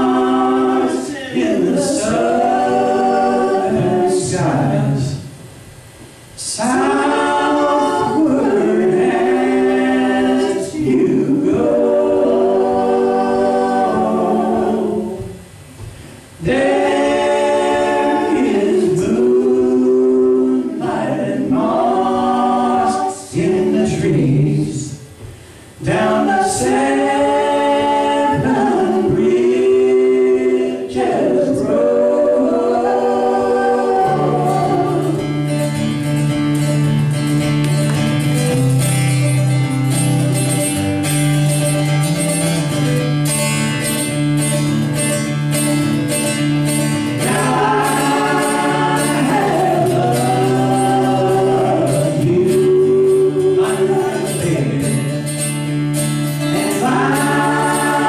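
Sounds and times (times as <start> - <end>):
woman and man singing a cappella: 0.0 - 5.3, 6.4 - 35.6, 47.1 - 55.3, 56.4 - 58.0.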